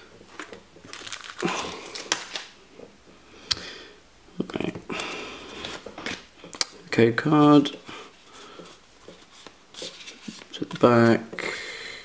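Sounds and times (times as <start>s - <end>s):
foil wrapper crinkling: 0.8s - 2.6s.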